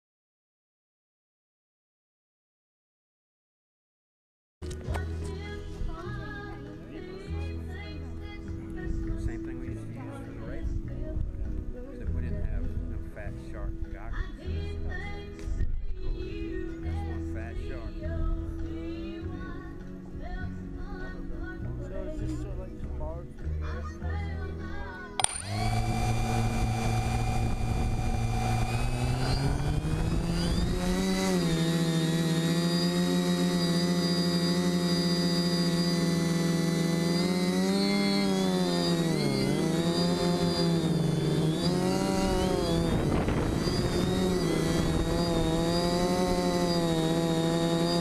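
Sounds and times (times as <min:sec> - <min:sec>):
quadcopter propellers whining: 0:25.2 - 0:48.0.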